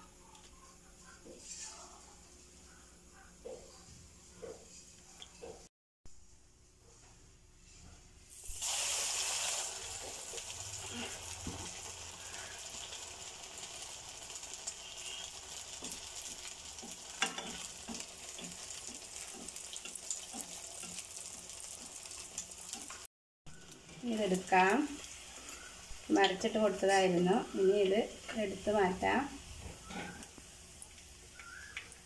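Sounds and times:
food sizzling in hot oil: 0:08.3 - 0:32.0.

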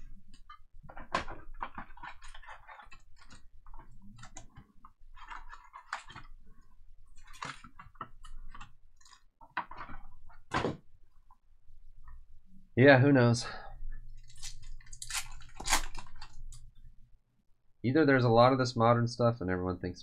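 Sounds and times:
card packs clicking and crinkling: 0:00.3 - 0:06.4.

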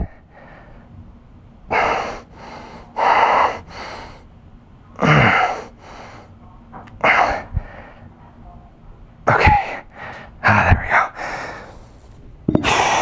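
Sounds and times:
man breathing hard: 0:00.0 - 0:00.9, 0:01.7 - 0:04.3, 0:05.0 - 0:06.3, 0:07.0 - 0:08.1, 0:09.7 - 0:13.0.

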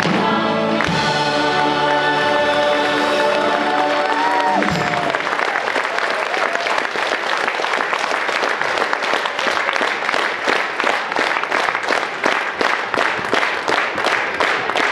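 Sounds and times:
audience applauding: 0:00.0 - 0:14.9
rhythmic clapping: 0:00.0 - 0:14.9.

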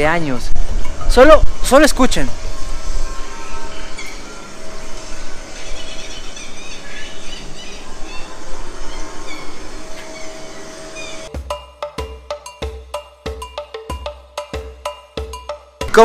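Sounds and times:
bird-like chirps and squeals: 0:02.4 - 0:11.3
music with drums and percussion: 0:11.3 - 0:16.0.

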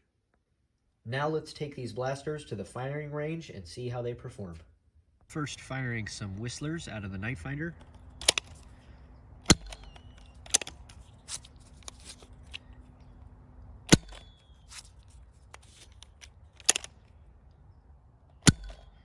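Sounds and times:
toy blaster plunger snapping: 0:08.2 - 0:08.7, 0:09.4 - 0:12.6, 0:15.5 - 0:17.0.

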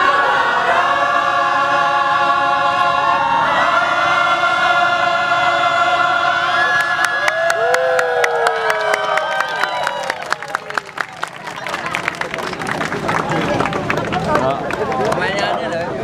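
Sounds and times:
choir singing in unison: 0:00.0 - 0:07.2.

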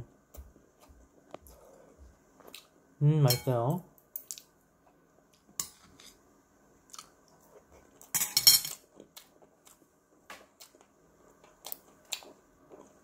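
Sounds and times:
utensils clinking against a dish: 0:08.1 - 0:08.8.

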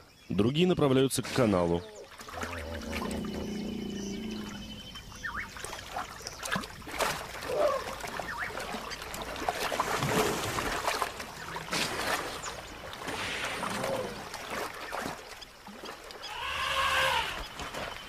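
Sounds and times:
water splashing and sloshing: 0:00.8 - 0:18.0
animal calls: 0:01.8 - 0:05.7, 0:16.2 - 0:17.6.

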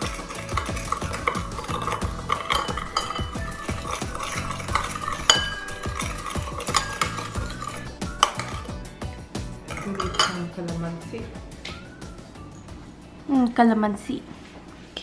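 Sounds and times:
metal spoon stirring in bowl: 0:00.0 - 0:10.6.

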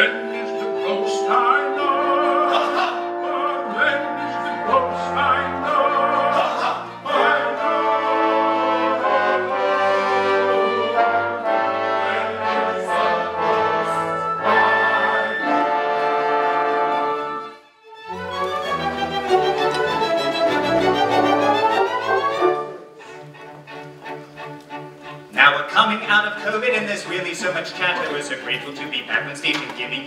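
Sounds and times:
cast and chorus singing: 0:00.0 - 0:17.4
orchestra playing operetta music: 0:00.0 - 0:30.0.

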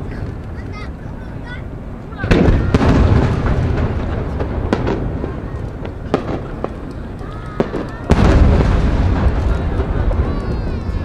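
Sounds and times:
firework booms with rumble: 0:02.2 - 0:11.0
sharp firework pops: 0:02.2 - 0:11.0.

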